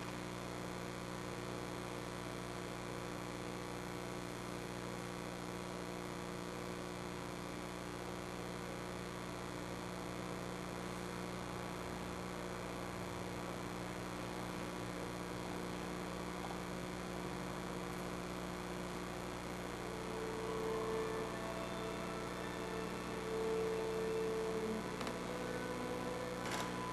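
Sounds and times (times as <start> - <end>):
electrical mains hum with hiss: 0.0 - 26.9
held tone: 19.4 - 26.9.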